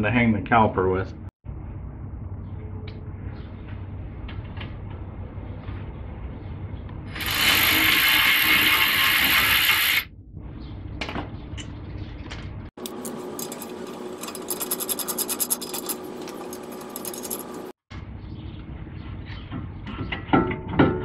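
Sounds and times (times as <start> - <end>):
rapid metallic clicks: 12.8 - 17.8.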